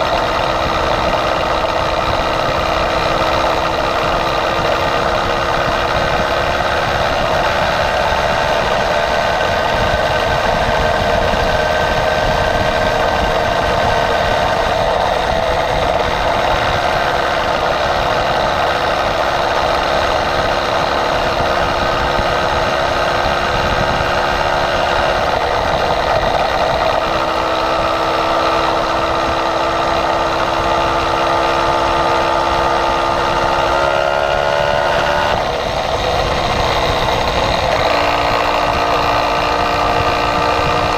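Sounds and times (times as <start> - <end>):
small bicycle engine running: 0.0 - 40.9
wind rush on microphone: 0.0 - 40.9.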